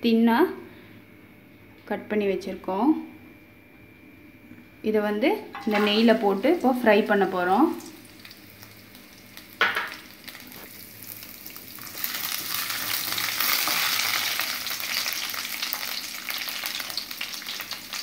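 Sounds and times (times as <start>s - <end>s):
coconut frying in ghee: 5.4s - 18.0s.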